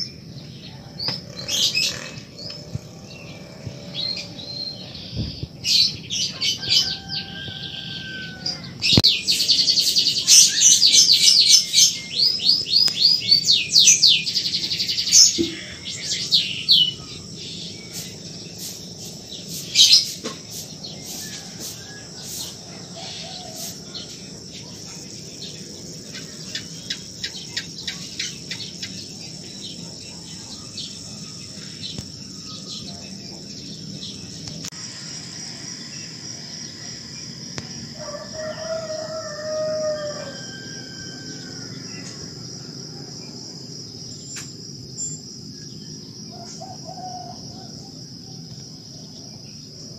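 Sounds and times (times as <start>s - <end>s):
small birds chirping: 0.0s - 38.8s
insect drone: 0.0s - 49.9s.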